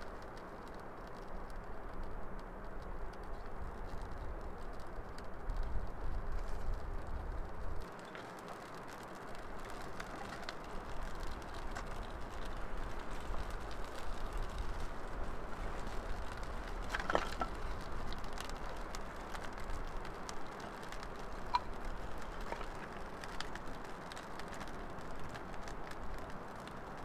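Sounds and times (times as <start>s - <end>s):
campfire crackling and popping: 0.0s - 27.0s.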